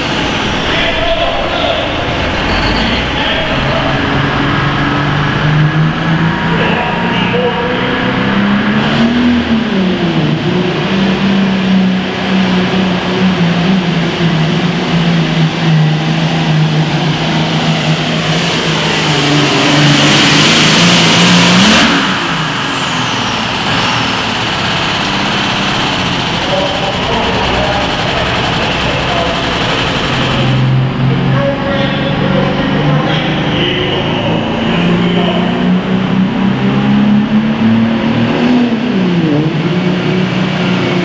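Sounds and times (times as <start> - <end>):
tractor engine running: 0.0 - 6.5, 14.7 - 31.7.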